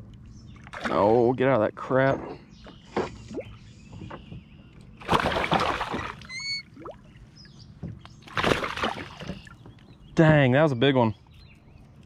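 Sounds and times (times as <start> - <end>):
fish splashing in water: 5.0 - 7.0, 8.2 - 9.6.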